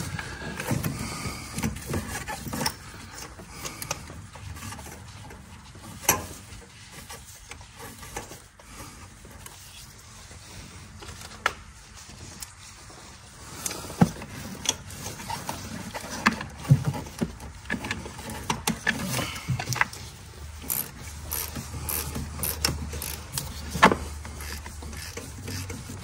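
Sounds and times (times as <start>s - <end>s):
tools clicking and knocking: 20.6s - 25.8s.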